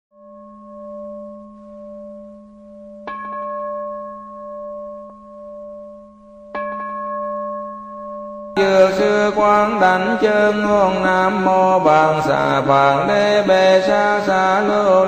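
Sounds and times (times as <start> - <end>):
singing bowl humming: 0.1 - 15.0
singing bowl struck: 0.2 - 9.8.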